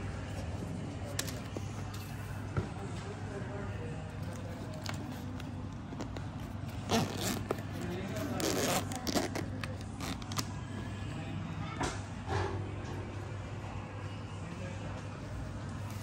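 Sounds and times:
fabric pouch rustling: 6.0s - 10.4s
zipper pulled open: 6.7s - 10.4s.

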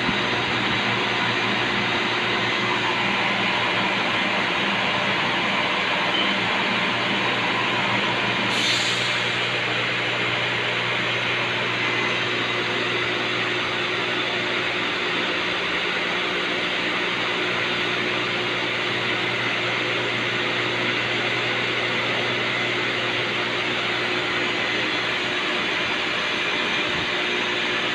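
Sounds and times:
milling machine humming: 0.0s - 27.9s
brief hiss: 8.5s - 9.4s.

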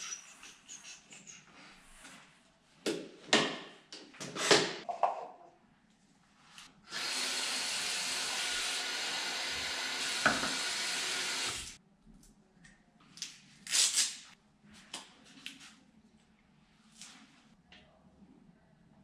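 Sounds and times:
sink tap running: 6.9s - 11.8s.

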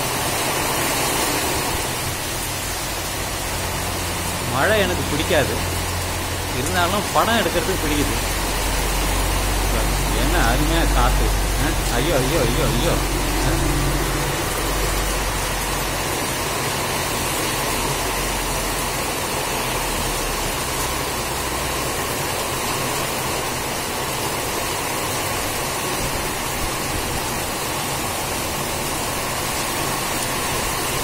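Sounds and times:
heavy rain: 0.0s - 31.0s
low rumble: 1.9s - 18.2s
strong wind: 8.1s - 18.2s.

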